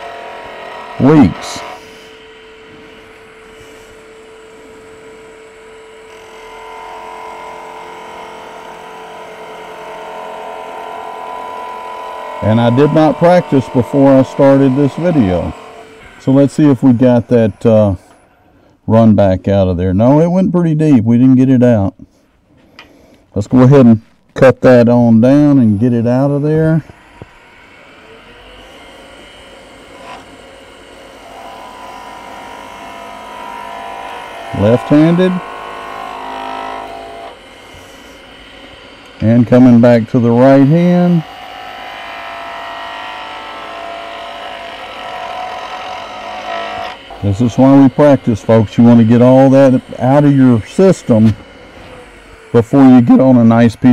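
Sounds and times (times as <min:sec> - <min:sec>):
buzzing tone: 0:00.0 - 0:18.4
wood lathe humming: 0:00.0 - 0:19.2, 0:22.8 - 0:53.9
chisel cutting spinning wood: 0:00.0 - 0:21.6, 0:23.4 - 0:53.9.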